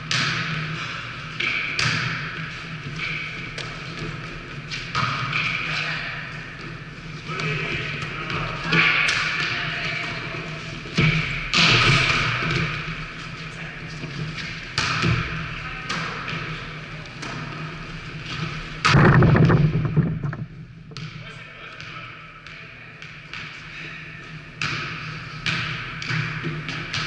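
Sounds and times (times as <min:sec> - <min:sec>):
volleyball hit by hands: 0:00.1 - 0:00.6, 0:01.4 - 0:02.4.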